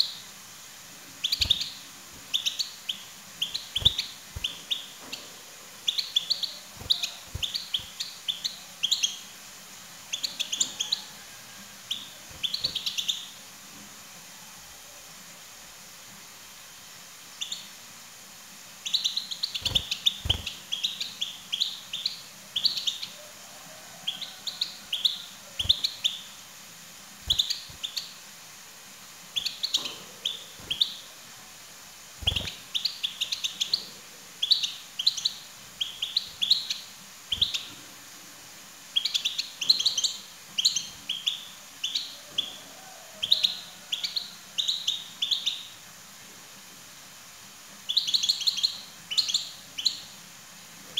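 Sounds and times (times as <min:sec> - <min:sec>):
goldfinch twittering song: 0:01.2 - 0:09.3, 0:11.9 - 0:13.4, 0:18.8 - 0:23.1, 0:24.2 - 0:26.3, 0:27.2 - 0:28.2, 0:29.4 - 0:31.1, 0:32.2 - 0:37.7.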